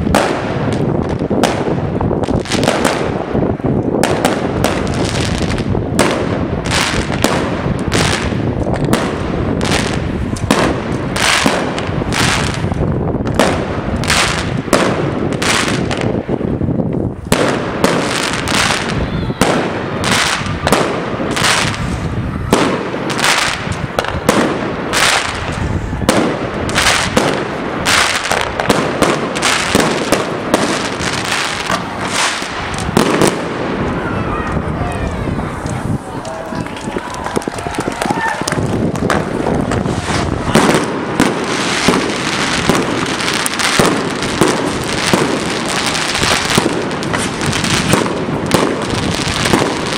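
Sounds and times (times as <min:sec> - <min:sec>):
fireworks bursting with sharp bangs: 0:00.0 - 0:49.9.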